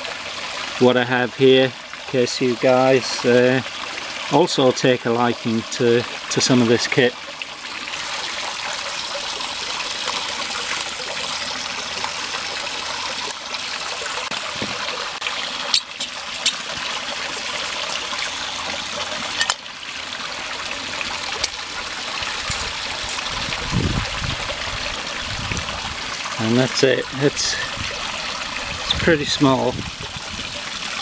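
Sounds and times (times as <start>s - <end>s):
creek water trickling: 0.0s - 31.0s.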